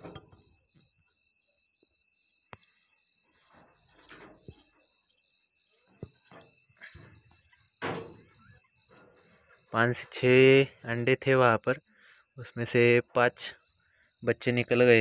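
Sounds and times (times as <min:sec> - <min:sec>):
cricket chirping: 0:00.0 - 0:15.0.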